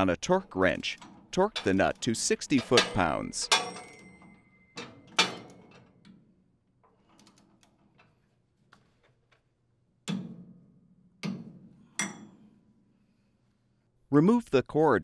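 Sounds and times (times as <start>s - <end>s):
torque wrench metallic clicks: 0.7s - 4.1s.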